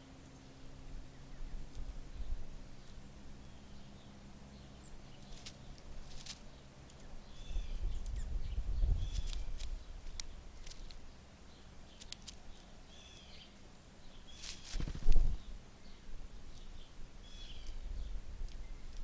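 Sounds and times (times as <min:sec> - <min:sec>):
bird bill pecking at seed: 0:04.5 - 0:15.5, 0:16.4 - 0:19.0.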